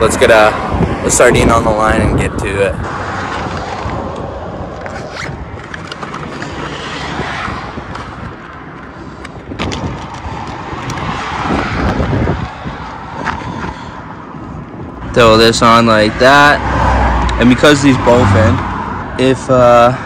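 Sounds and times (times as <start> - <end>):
road traffic passing: 0.0 - 20.0
zipper being pulled open: 4.8 - 7.2.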